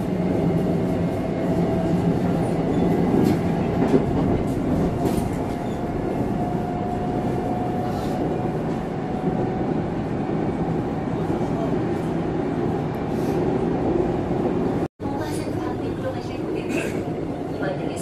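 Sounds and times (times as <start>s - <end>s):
subway train wheels rumbling: 0.0s - 18.0s.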